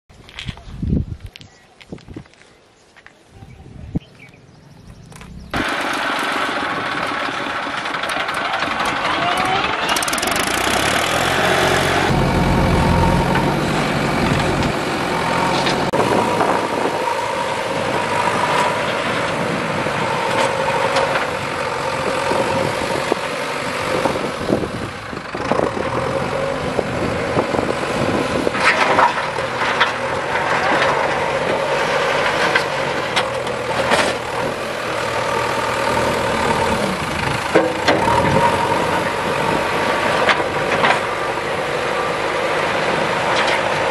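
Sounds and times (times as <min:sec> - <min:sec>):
backhoe loader engine working: 0:04.4 - 0:43.9
tractor diesel engine running: 0:04.8 - 0:43.9.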